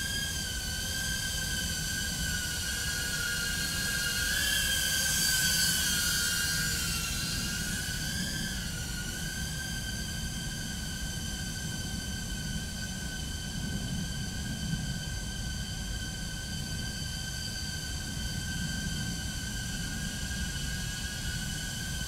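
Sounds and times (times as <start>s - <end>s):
drone motors whining: 0.0s - 22.0s.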